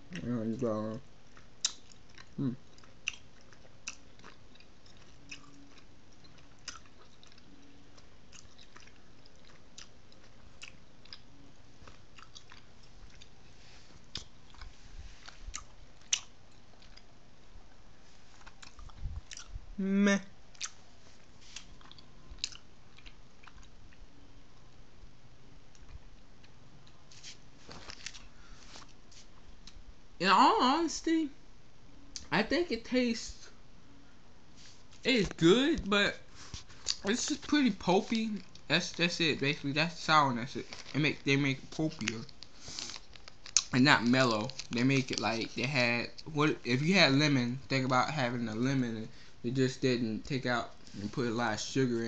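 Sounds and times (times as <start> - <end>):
mouth clicks and smacks chewing: 1.3 - 13.4, 14.0 - 17.1, 18.4 - 19.6, 20.5 - 20.8, 21.5 - 24.0, 36.8 - 37.1
person humming: 19.8 - 20.3.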